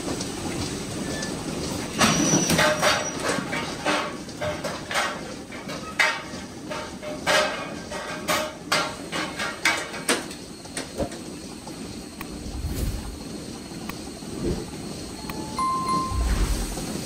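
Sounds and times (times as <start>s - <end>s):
steady machine noise: 11.5s - 17.0s.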